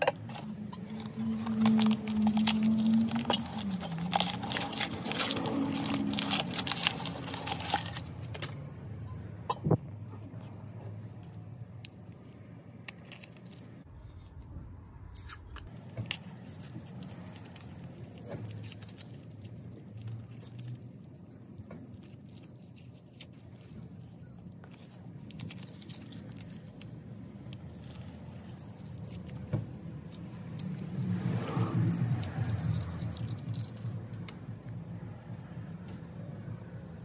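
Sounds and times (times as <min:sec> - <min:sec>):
metal parts clicking and scraping: 0:00.0 - 0:08.6, 0:15.1 - 0:34.5.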